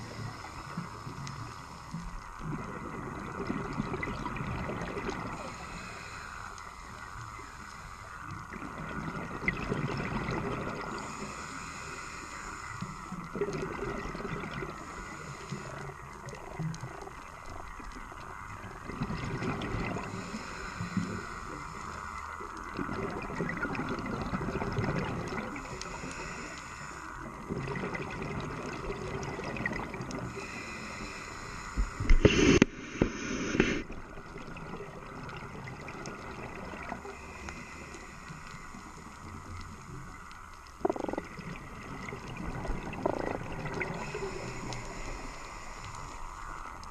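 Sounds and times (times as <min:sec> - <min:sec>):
underwater hiss with bubbling: 0:00.0 - 0:46.9
sharp burst of noise: 0:32.0 - 0:33.9.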